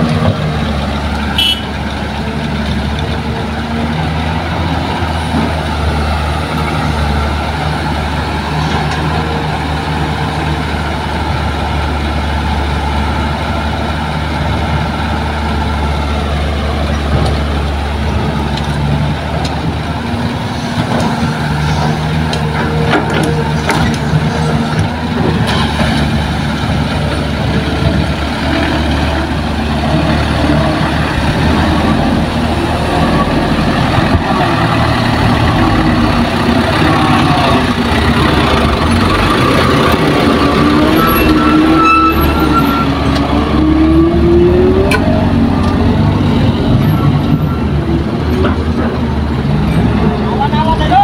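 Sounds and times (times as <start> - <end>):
heavy diesel engines rumbling: 0.0 - 51.0.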